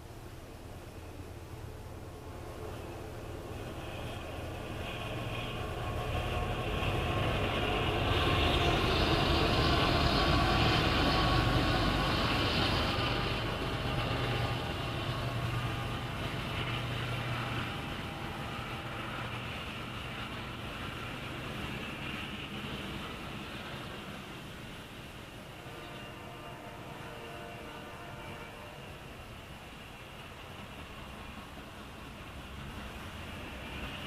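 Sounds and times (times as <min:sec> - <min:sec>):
diesel locomotives passing: 0:00.0 - 0:34.0
tank cars rumbling past: 0:02.2 - 0:24.8.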